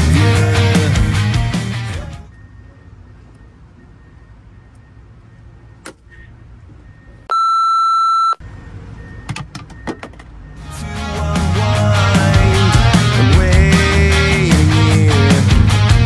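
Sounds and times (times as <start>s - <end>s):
censor bleep: 6.8s - 10.6s.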